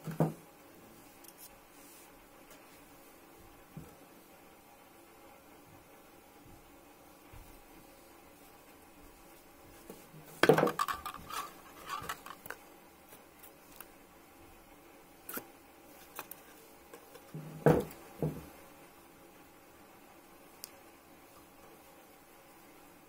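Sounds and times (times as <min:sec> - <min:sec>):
small objects clattering on tabletop: 0:10.4 - 0:12.6.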